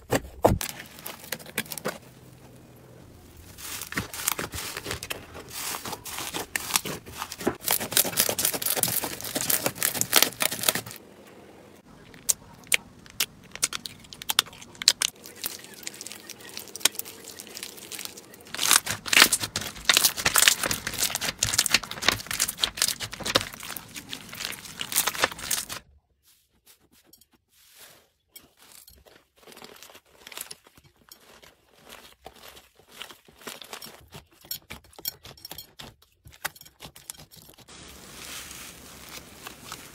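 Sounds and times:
foam bead slime crunching: 0.6s - 11.0s, 11.8s - 25.8s, 26.7s - 39.9s
slime crackling and popping: 3.4s - 11.0s, 12.0s - 25.8s.

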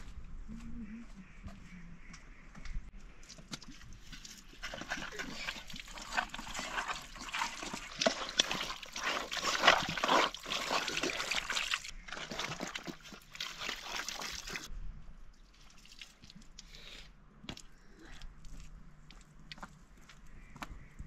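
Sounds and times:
meat sloshing in water: 4.0s - 14.7s
water pouring into metal colander: 4.6s - 14.7s.

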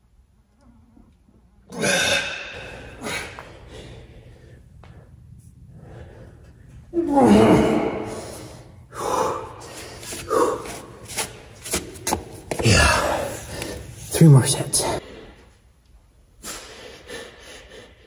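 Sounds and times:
man breathing hard: 1.8s - 11.2s, 16.4s - 18.0s
man groaning: 7.0s - 8.2s.

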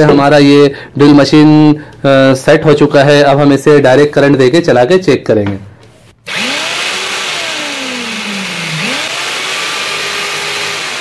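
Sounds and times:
hammer drill motor running: 6.2s - 11.0s.

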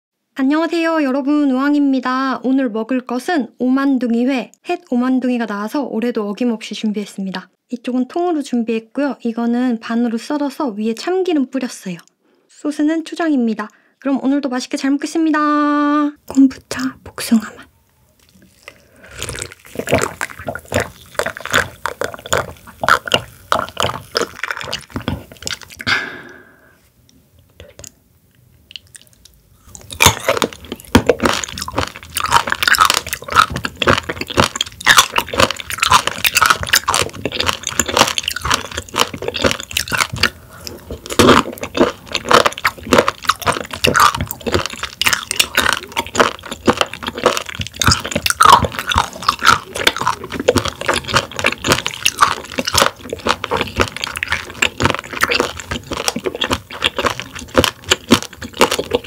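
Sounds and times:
crunchy chewing: 18.2s - 25.9s, 28.7s - 59.0s.

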